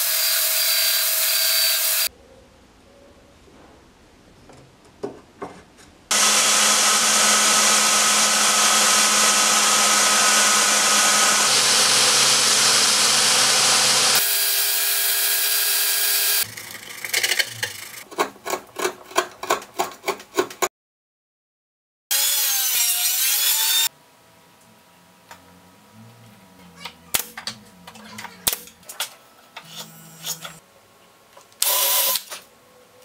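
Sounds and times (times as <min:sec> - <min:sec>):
belt sander grinding steel: 0:06.1 - 0:18.0, 0:29.6 - 0:30.6.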